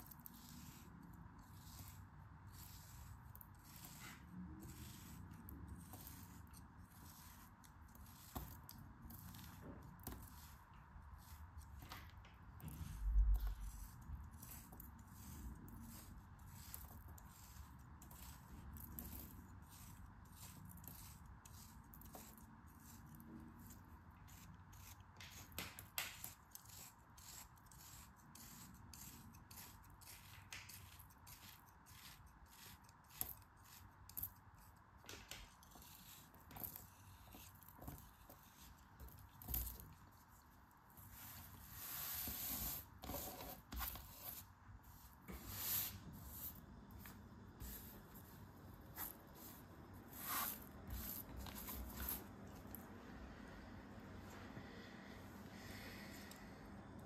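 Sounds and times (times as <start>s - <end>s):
knife scraping sand: 0.0s - 9.6s, 26.1s - 34.0s, 48.9s - 52.2s.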